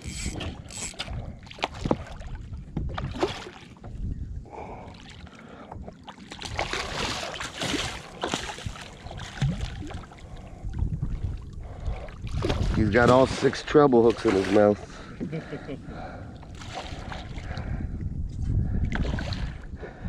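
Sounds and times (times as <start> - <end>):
knocks and clicks on hull: 0.0 - 4.1, 5.6 - 15.6
water sloshing around kayak: 0.0 - 20.0
wind on microphone: 0.0 - 20.0.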